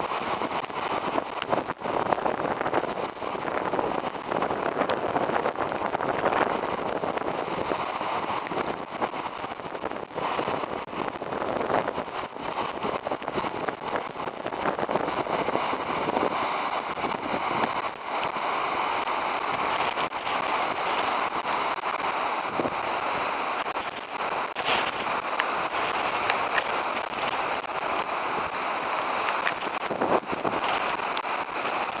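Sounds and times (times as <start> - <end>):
debris flow rushing down a creek: 0.0 - 32.0
crackles and knocks of debris: 23.6 - 27.8.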